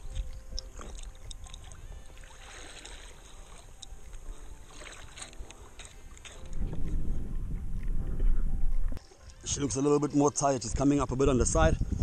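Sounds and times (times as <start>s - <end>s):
water lapping against kayak hull: 0.0s - 9.4s.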